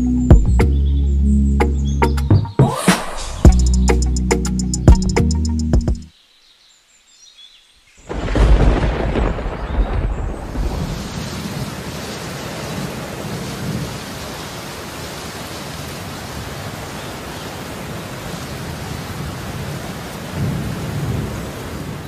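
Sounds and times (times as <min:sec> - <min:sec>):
rain hissing: 0:07.7 - 0:22.0
low thunder rumbling: 0:08.1 - 0:12.0.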